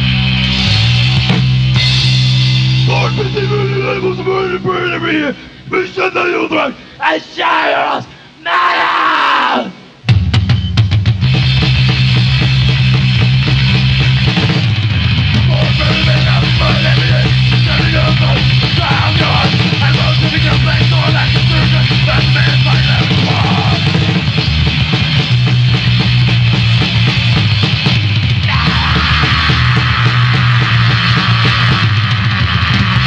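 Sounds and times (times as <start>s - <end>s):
punk band playing: 0.0s - 7.3s, 9.9s - 33.0s
shouted vocals: 2.9s - 9.9s, 15.5s - 24.0s, 28.4s - 33.0s.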